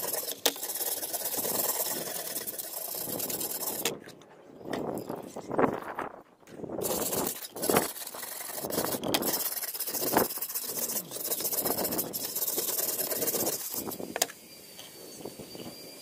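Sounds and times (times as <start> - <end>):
abrasive block scraping wet steel: 0.0 - 4.1, 6.8 - 14.1.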